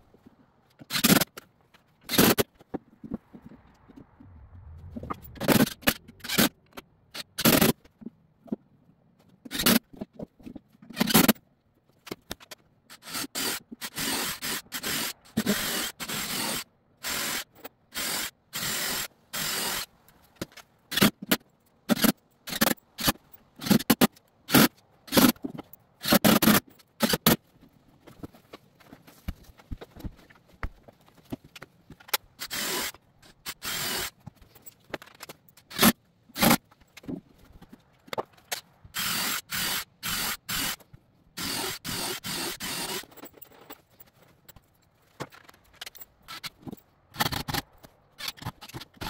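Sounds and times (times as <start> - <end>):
cordless drill driving screws: 13.0 - 19.9, 32.4 - 34.1, 39.0 - 40.8, 41.4 - 43.1.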